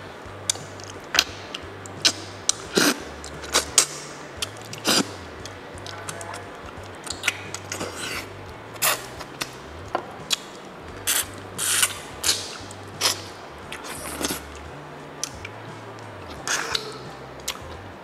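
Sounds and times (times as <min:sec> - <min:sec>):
person chewing and sucking meat: 0:06.6 - 0:09.6, 0:10.3 - 0:14.6.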